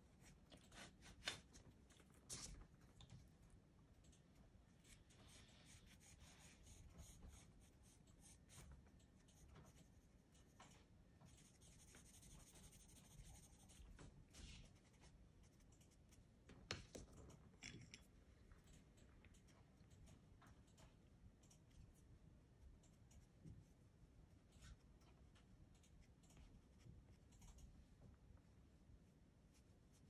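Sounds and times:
pencil scratching on paper: 0:04.7 - 0:16.2.

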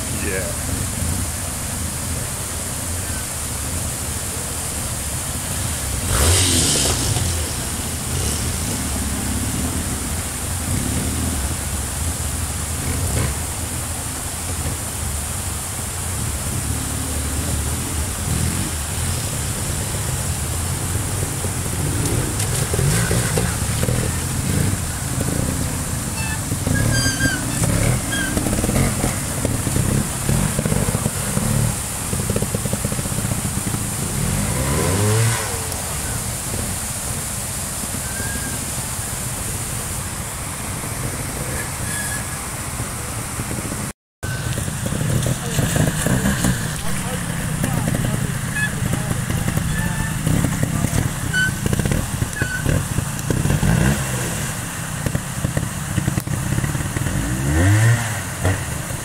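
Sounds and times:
stream rushing: 0:00.0 - 0:59.0
motorcycle engine blipping: 0:44.2 - 0:53.6.

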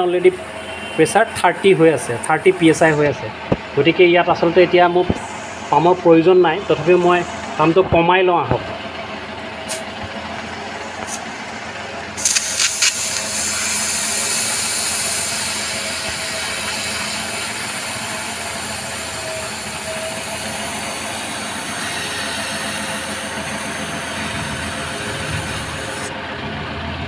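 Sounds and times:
air hissing from tyre valve: 0:09.6 - 0:09.9, 0:11.0 - 0:11.4, 0:12.1 - 0:26.1.

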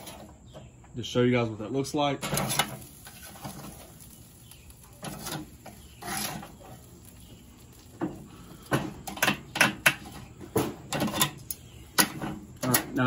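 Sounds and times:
metal tongs clinking on grill: 0:02.2 - 0:07.8.

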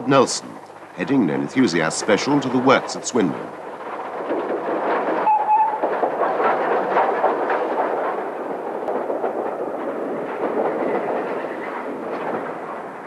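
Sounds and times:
steam locomotive exhaust beats: 0:00.0 - 0:13.0
locomotive whistle: 0:05.2 - 0:05.8.

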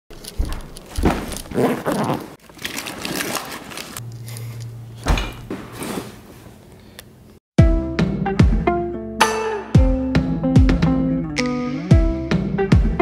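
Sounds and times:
fabric bag rustling: 0:00.2 - 0:04.0.

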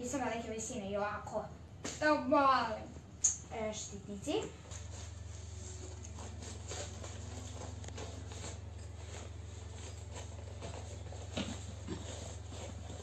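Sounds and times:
steady low hum: 0:00.0 - 0:13.0
fabric rustling: 0:04.5 - 0:13.0.

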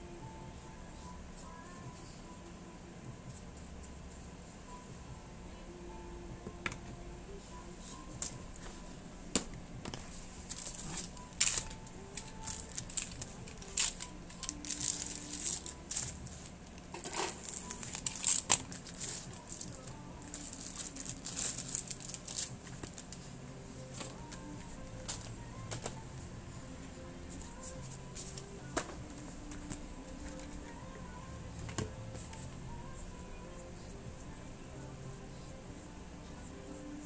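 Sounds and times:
plastic packaging crinkling: 0:10.5 - 0:16.2, 0:16.9 - 0:23.2.

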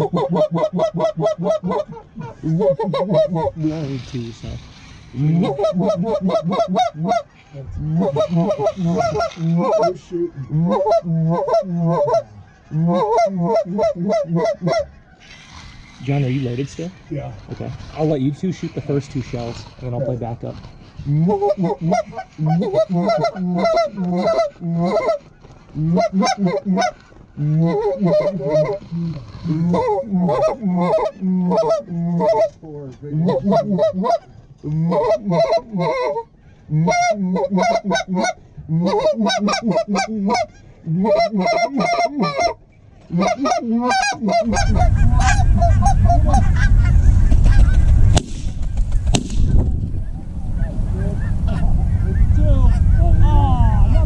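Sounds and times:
geese honking and clucking: 0:00.0 - 0:54.0
loud low rushing noise: 0:44.5 - 0:54.0.

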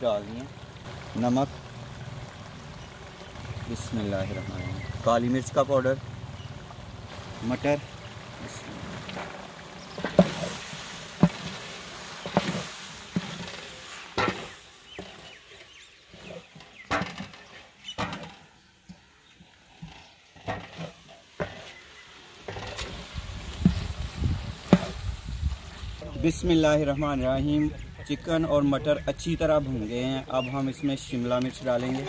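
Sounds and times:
food sizzling in a pot: 0:00.0 - 0:17.1, 0:20.7 - 0:26.6.

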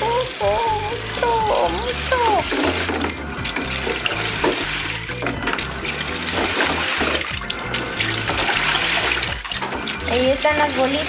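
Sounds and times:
background music: 0:00.0 - 0:11.0
water sloshing in washing machine: 0:00.0 - 0:11.0.

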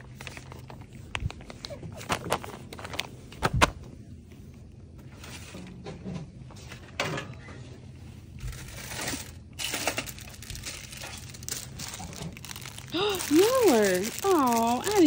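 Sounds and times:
plastic packaging rustling: 0:00.0 - 0:03.9, 0:08.3 - 0:15.0.

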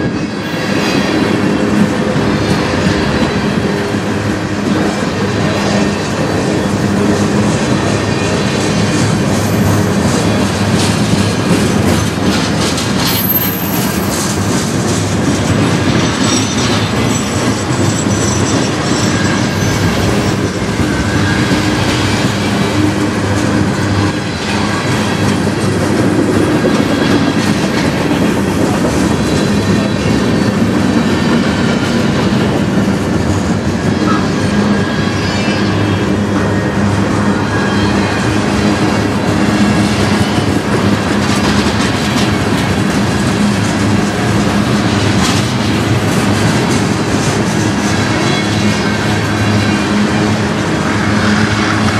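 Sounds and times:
clickety-clack over rail joints: 0:00.0 - 0:51.9
train wheels rumbling on rail: 0:00.0 - 0:51.9
high wheel squeals: 0:15.7 - 0:25.4, 0:34.0 - 0:38.7.

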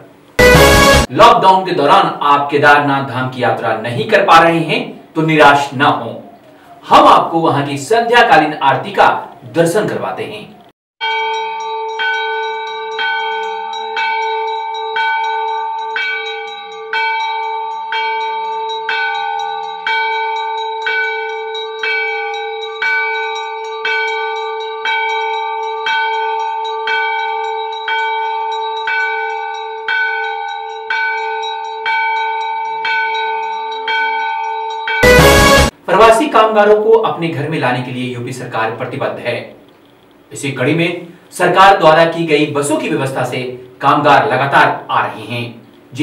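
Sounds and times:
temple bell ringing: 0:00.1 - 0:02.0, 0:11.0 - 0:35.8.

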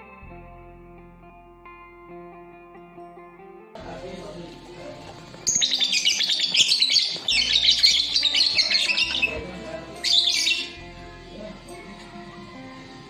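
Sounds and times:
lovebirds chirping shrilly: 0:05.5 - 0:10.8.

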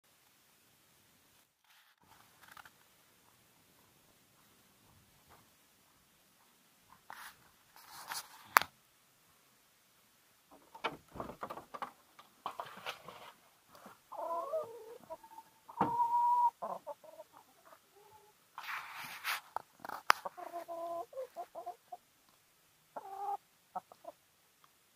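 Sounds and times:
wooden door clicks and knocks: 0:10.6 - 0:12.0
hens clucking: 0:12.4 - 0:18.4, 0:20.0 - 0:22.0, 0:23.0 - 0:24.2.

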